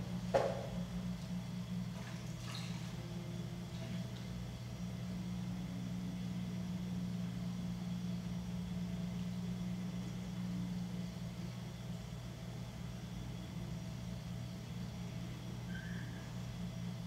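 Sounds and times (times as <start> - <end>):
potter's wheel motor humming: 0.0 - 17.0.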